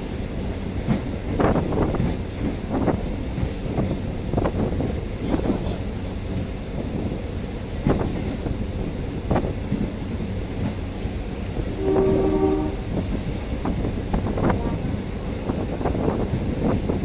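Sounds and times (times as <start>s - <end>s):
train rumbling on rails: 0.0s - 17.0s
locomotive horn: 11.7s - 13.0s, 14.5s - 15.0s.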